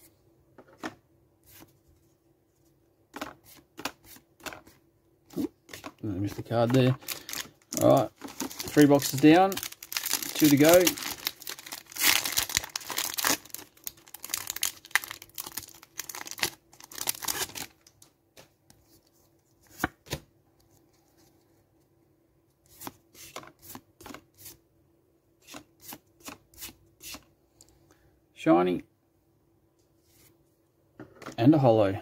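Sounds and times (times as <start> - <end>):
foil wrapper tearing and crinkling: 7.0 - 17.8.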